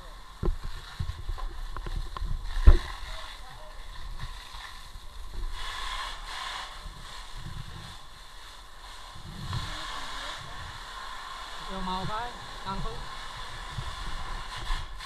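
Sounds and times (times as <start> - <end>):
hissing water: 0.0 - 15.0.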